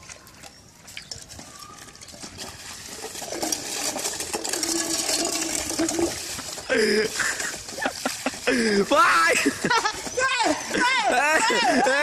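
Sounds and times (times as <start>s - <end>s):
broom scrubbing wet tiled floor: 2.4s - 11.0s.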